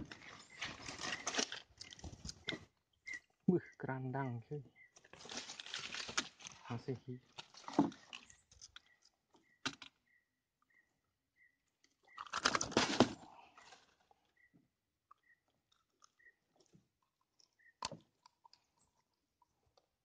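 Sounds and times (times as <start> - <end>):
fish handling noise: 0.0 - 3.2, 4.8 - 9.9.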